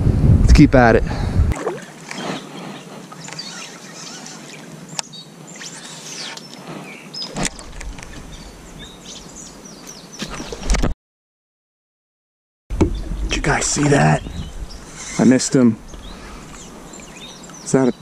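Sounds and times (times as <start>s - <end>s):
steady outdoor hiss: 0.0s - 10.9s, 12.7s - 18.0s
small birds chirping: 1.6s - 10.8s, 12.9s - 18.0s.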